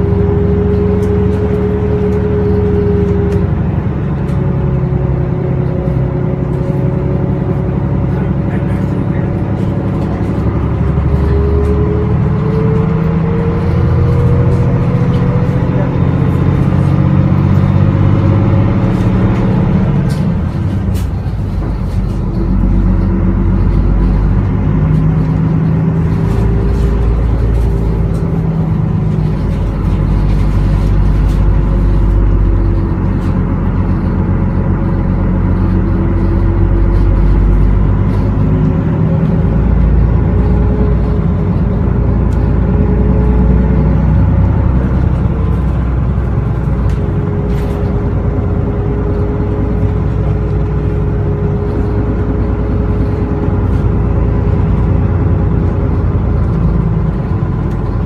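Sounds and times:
bus engine under load: 0.0 - 58.0.

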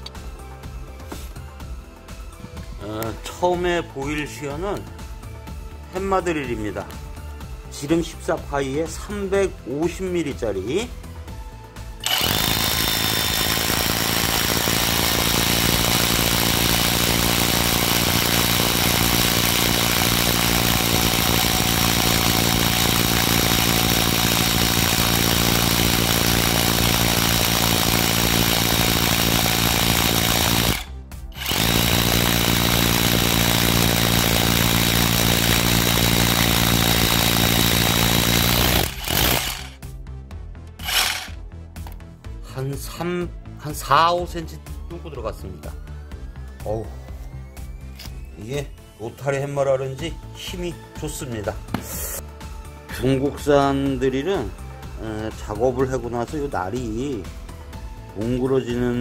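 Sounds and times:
hammer drill boring into concrete: 12.0 - 39.8, 40.8 - 41.4.

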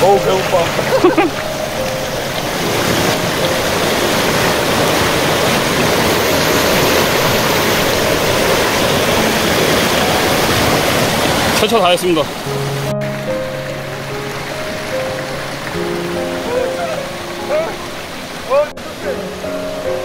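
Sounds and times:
stream rushing over rocks: 0.0 - 20.0.

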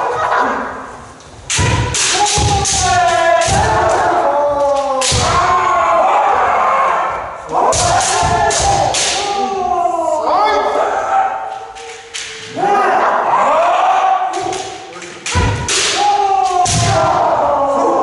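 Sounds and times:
bamboo sword strikes cracking: 1.5 - 4.1, 7.7 - 9.4, 14.4 - 17.0
people shouting drawn-out yells: 1.5 - 18.0.

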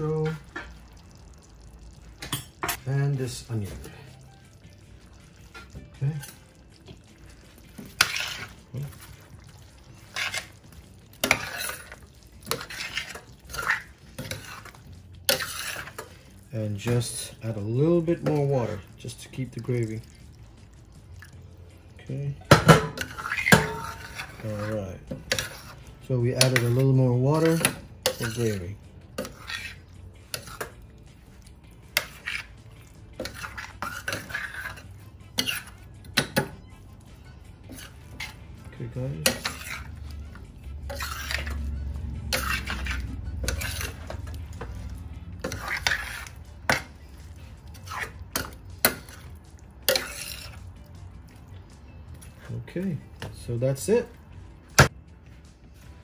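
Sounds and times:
metal spoon scraping a pan: 0.0 - 21.4, 22.0 - 54.2
spoon clinking against a pan: 2.2 - 2.9, 22.4 - 30.9, 31.8 - 38.4, 47.8 - 51.5.

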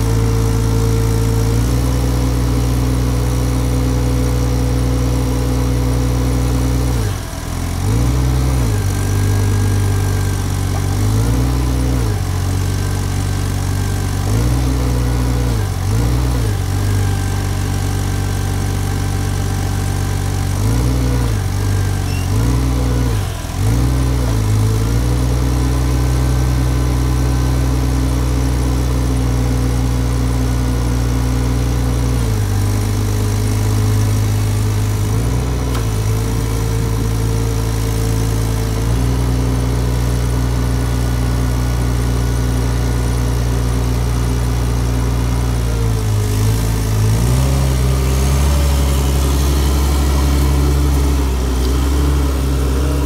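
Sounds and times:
forklift engine running: 0.0 - 53.0.

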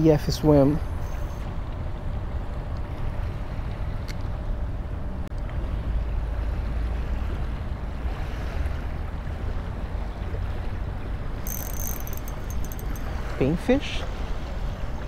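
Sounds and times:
high-pitched rattling: 11.4 - 13.1.

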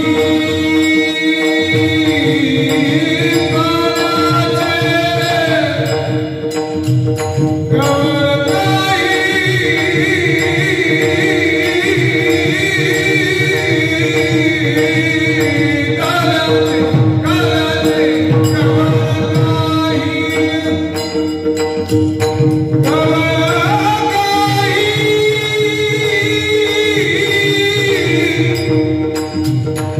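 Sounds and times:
men singing in chorus: 0.0 - 6.6, 7.7 - 21.4
hand drum playing: 0.0 - 29.9.

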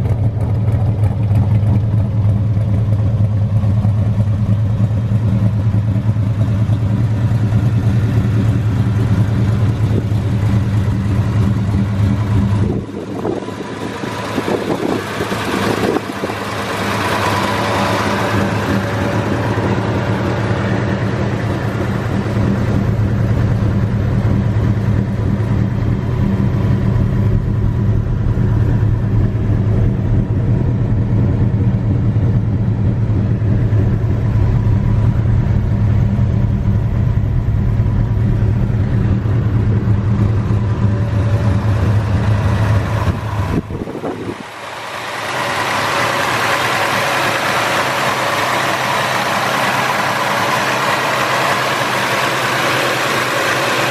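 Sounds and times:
engine idling with deep exhaust: 0.0 - 53.9
light hissy engine sound: 1.0 - 30.2, 32.8 - 53.9.

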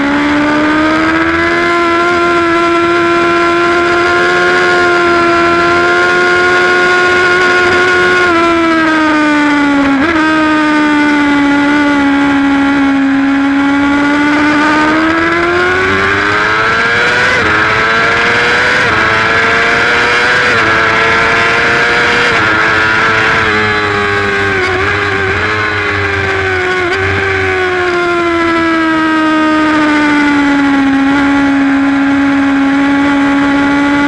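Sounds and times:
superbike engine at high revs: 0.0 - 34.0.

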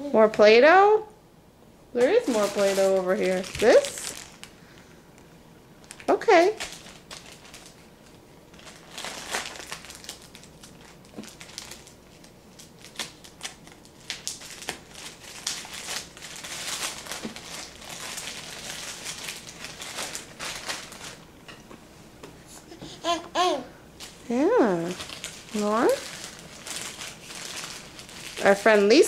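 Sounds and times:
rustling and crinkling: 2.0 - 4.9, 5.8 - 23.2, 24.0 - 29.0.

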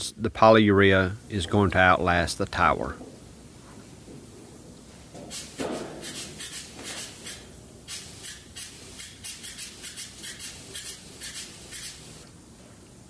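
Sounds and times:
spray gun hissing in bursts: 5.2 - 12.3.

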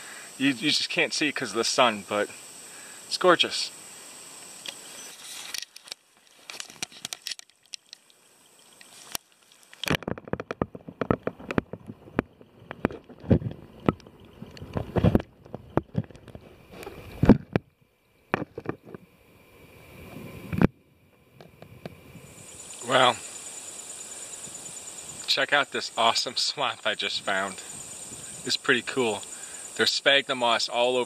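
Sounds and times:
irregular knocks and thumps: 9.8 - 17.7, 18.3 - 19.0.

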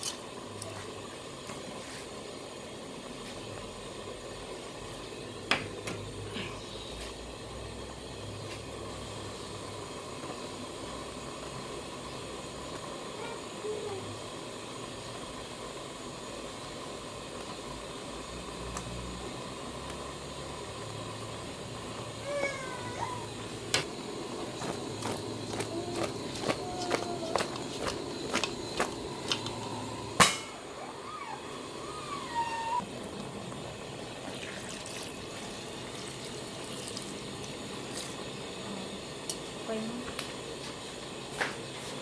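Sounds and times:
stew simmering with a hiss: 0.0 - 42.0
rising-and-falling call: 29.6 - 32.9.

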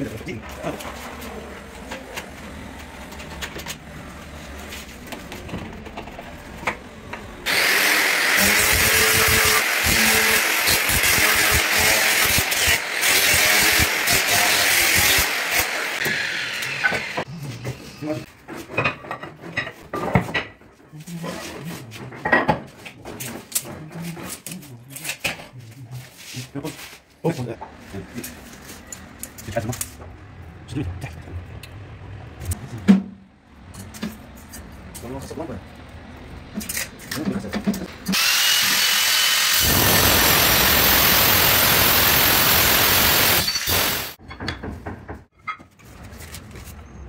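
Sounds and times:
angle grinder running: 7.4 - 17.3, 38.1 - 44.2
blade scraper scratching: 7.5 - 17.0.

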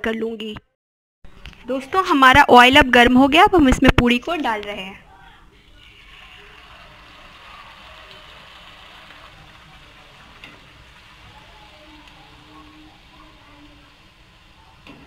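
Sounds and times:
oil sizzling and bubbling: 5.5 - 15.0.

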